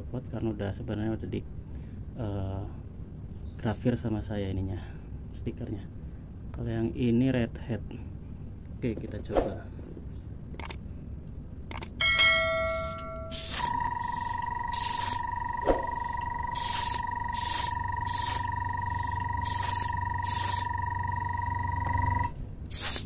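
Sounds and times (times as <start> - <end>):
ringing ding: 12.0 - 16.3
airbrush compressor whine: 12.7 - 23.0
paint spray hisses: 12.8 - 15.2, 16.6 - 20.7, 22.7 - 23.0.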